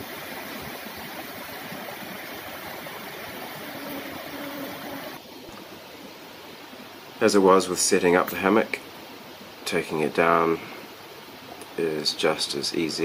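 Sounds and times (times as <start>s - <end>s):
stream flowing over stones: 0.0s - 5.2s.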